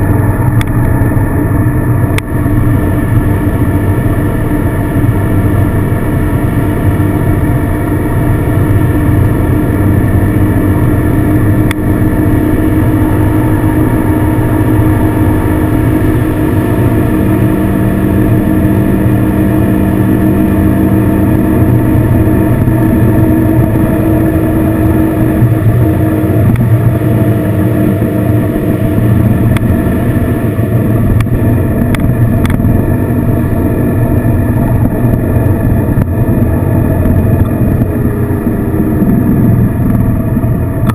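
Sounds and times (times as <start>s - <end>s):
motorcycle engine cruising: 0.0s - 40.9s
road rumble: 0.0s - 40.9s
wind: 0.0s - 40.9s.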